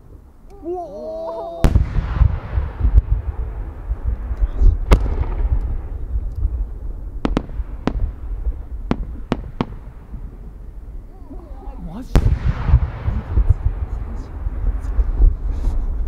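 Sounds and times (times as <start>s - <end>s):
firework cracks: 0.0s - 16.0s
firework bang: 1.6s - 10.6s, 12.0s - 16.0s
low rumble of echoes: 1.6s - 15.5s.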